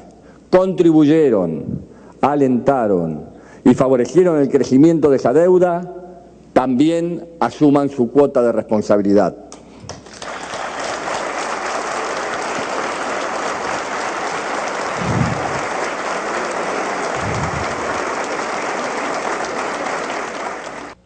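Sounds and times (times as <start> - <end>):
audience applauding: 9.9 - 21.0.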